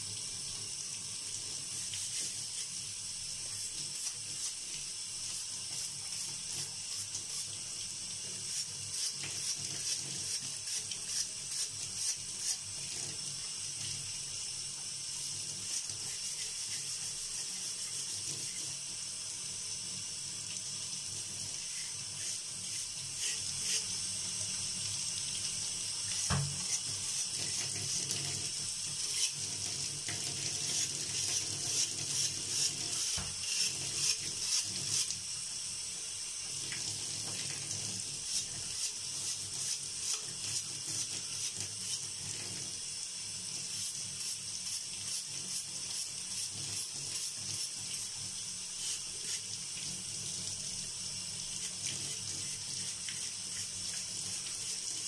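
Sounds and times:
tap water running: 0:00.0 - 0:55.0
brush scrubbing metal jug: 0:15.6 - 0:18.7, 0:21.6 - 0:24.0, 0:30.5 - 0:35.2.

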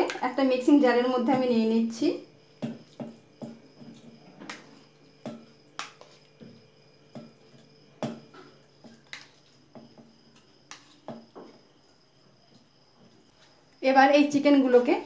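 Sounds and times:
metal spoon scraping plastic bowl: 0:05.8 - 0:06.2.

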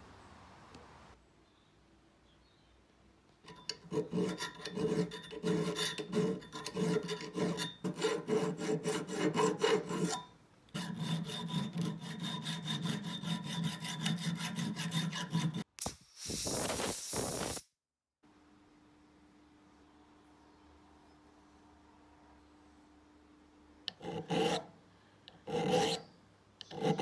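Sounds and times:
round file rasping on steel: 0:03.5 - 0:15.7, 0:23.9 - 0:24.7, 0:25.3 - 0:27.0
harsh hiss: 0:15.8 - 0:17.7.

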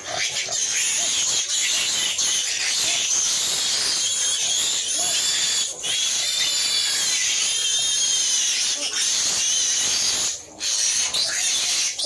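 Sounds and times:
pig grunts: 0:00.0 - 0:03.2
piglets squealing: 0:00.0 - 0:12.0.

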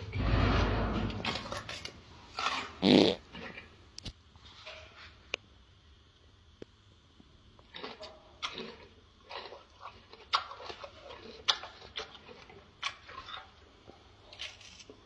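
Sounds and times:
gorilla chewing crunchy food: 0:01.2 - 0:05.0, 0:07.4 - 0:15.0.

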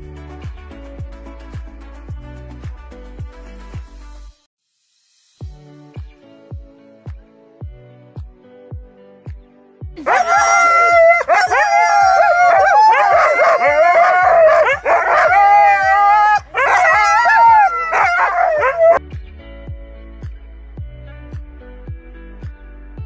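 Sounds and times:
music with a steady beat: 0:00.0 - 0:04.4, 0:05.2 - 0:23.0
huskies howling and yelping: 0:10.0 - 0:19.0.

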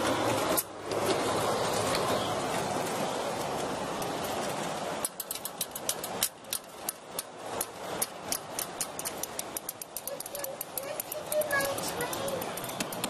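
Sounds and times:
train wheels clicking over rail joints: 0:05.0 - 0:13.0.

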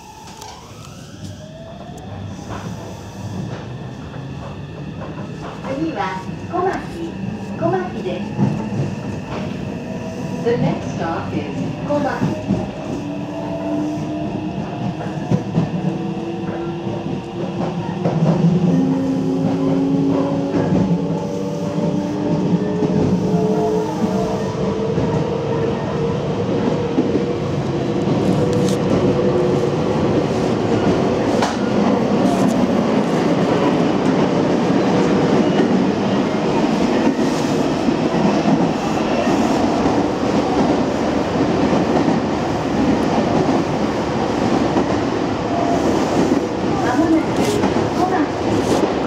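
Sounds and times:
rumble of wheels on rail: 0:00.0 - 0:49.0.

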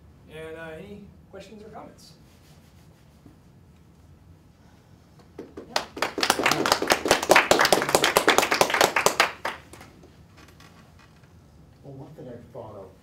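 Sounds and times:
audience applauding: 0:05.4 - 0:09.9.

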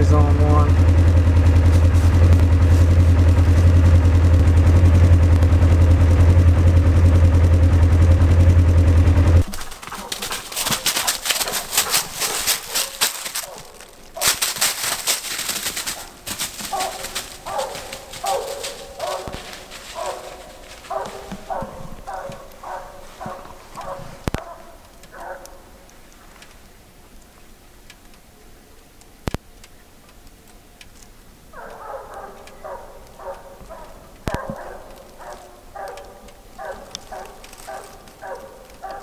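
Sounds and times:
loud low drone: 0:00.0 - 0:10.5
footsteps crunching dry leaves: 0:01.3 - 0:04.5, 0:09.4 - 0:26.6, 0:32.2 - 0:39.0
dog barking: 0:09.6 - 0:14.9, 0:15.7 - 0:25.8, 0:31.5 - 0:39.0.

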